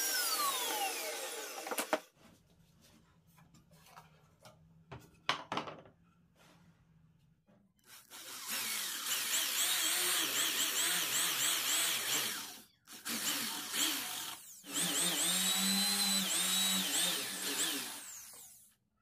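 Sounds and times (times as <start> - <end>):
electric drill boring into plywood: 0.0 - 2.1, 7.8 - 18.7.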